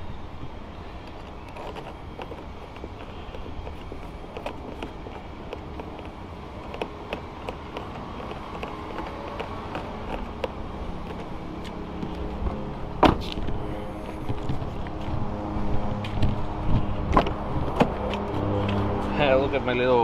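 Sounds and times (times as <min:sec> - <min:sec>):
steady low rumble: 0:00.0 - 0:20.0
hands clicking and tapping car door: 0:01.5 - 0:13.6.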